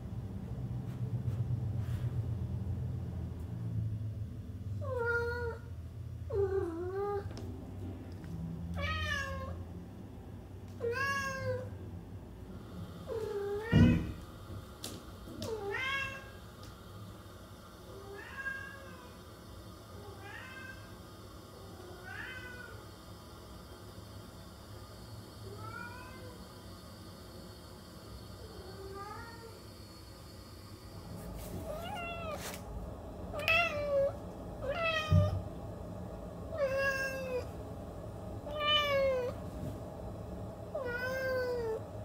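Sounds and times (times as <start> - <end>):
cat meowing: 8.7 - 9.6.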